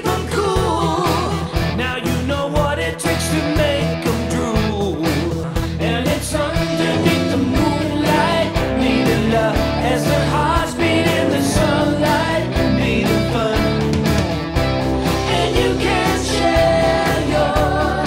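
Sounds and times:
person singing: 0:00.0 - 0:14.1, 0:15.1 - 0:18.0
rock song: 0:00.0 - 0:18.0
steady drum beat: 0:00.0 - 0:18.0.

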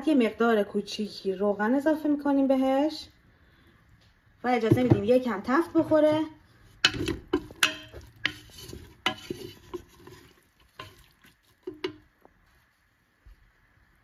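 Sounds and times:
spatula scraping metal pot: 0:05.7 - 0:12.0.

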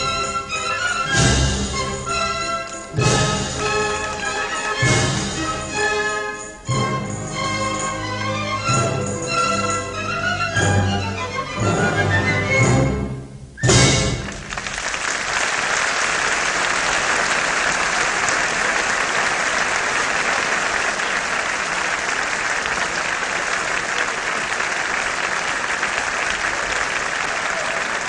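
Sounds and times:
orchestral music: 0:00.0 - 0:14.8
audience applauding: 0:02.1 - 0:06.1, 0:14.0 - 0:28.0.

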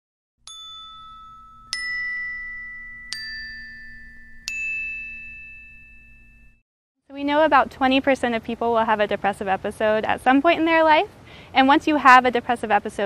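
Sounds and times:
bell-like struck notes: 0:00.4 - 0:06.6.

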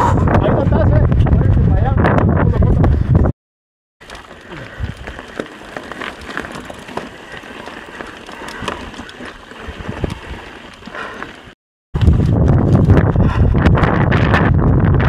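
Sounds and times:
bike tyres crunching on gravel: 0:04.0 - 0:12.9.

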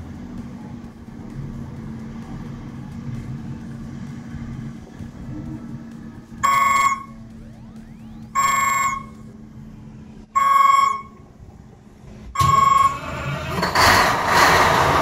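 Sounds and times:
steady low hum: 0:00.0 - 0:13.0
electronic warning alarm beeps: 0:06.4 - 0:09.4, 0:10.4 - 0:11.3, 0:12.4 - 0:13.0.

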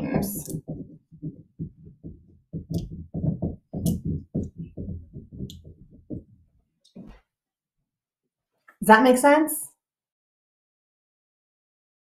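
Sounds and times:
marker writing on whiteboard: 0:00.0 - 0:07.2.

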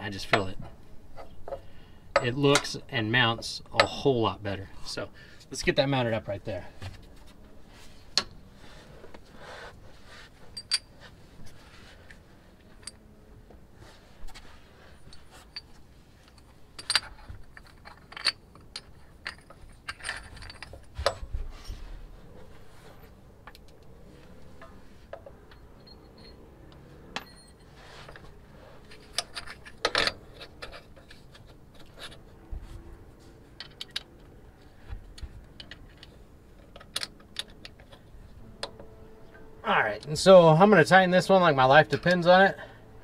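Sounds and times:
metal hardware clinking: 0:00.2 - 0:02.8, 0:10.5 - 0:11.0, 0:15.1 - 0:21.3, 0:28.9 - 0:31.2.

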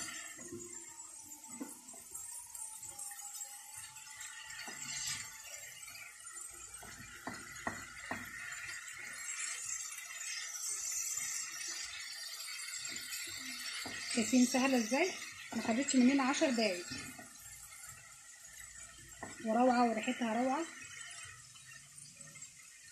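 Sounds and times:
food sizzling in a frying pan: 0:00.0 - 0:22.9
spatula stirring and scraping: 0:00.0 - 0:22.9
spatula tapping on pan: 0:06.7 - 0:08.7, 0:13.6 - 0:14.1, 0:19.2 - 0:19.4.

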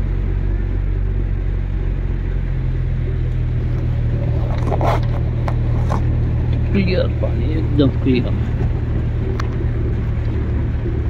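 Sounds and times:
vehicle engine droning: 0:00.0 - 0:11.0
water rushing and splashing: 0:00.0 - 0:11.0.

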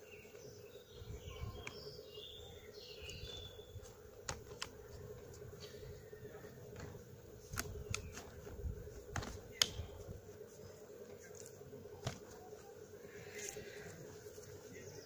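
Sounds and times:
plastic clicks and snaps: 0:04.2 - 0:04.8, 0:06.8 - 0:08.4, 0:09.1 - 0:09.9.

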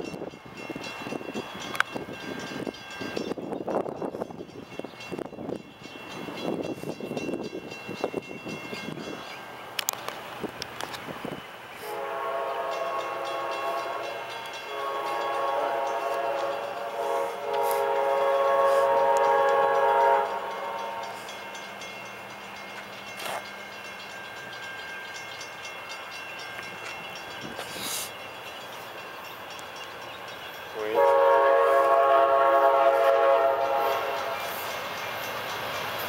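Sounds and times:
distant locomotive horn blasts: 0:11.8 - 0:21.8, 0:30.7 - 0:34.6.

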